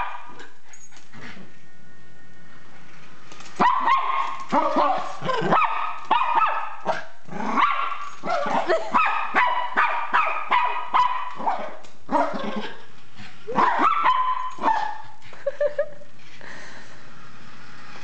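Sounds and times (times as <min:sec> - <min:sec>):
small dog barking sharply: 0:03.6 - 0:07.0, 0:09.0 - 0:11.8.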